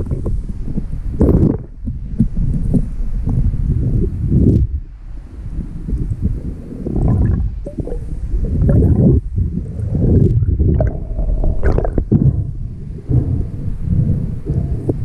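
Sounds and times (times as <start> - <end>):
underwater rushing and gurgling: 0.0 - 15.0
bubble pops: 10.2 - 12.2.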